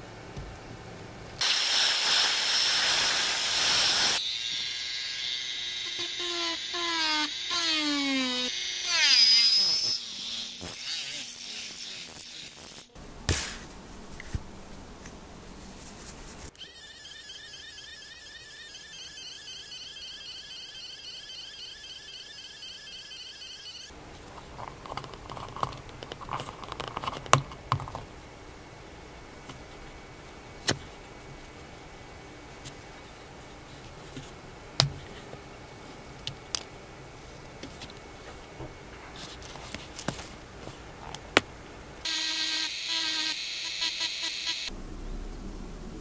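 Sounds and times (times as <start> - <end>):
pen feed motor whine: 1.4 - 12.9, 16.6 - 24.0, 42.0 - 44.8
rotary tool winding down: 2.4 - 12.9, 16.6 - 23.9.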